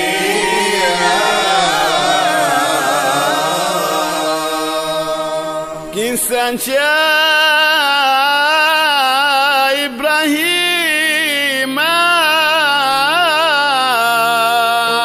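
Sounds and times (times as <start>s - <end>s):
voices chanting a melody: 0.0s - 7.3s.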